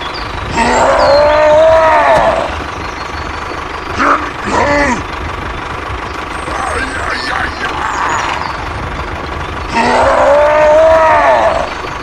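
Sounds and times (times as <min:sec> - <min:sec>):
tractor engine running: 0:00.0 - 0:12.0
voice-like pitched call: 0:06.4 - 0:08.7.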